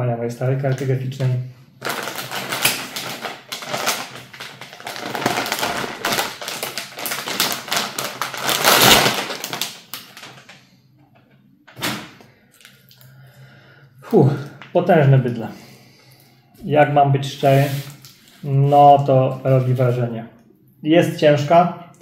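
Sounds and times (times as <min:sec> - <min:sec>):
plastic bag crinkling and rustling: 0:00.6 - 0:10.8.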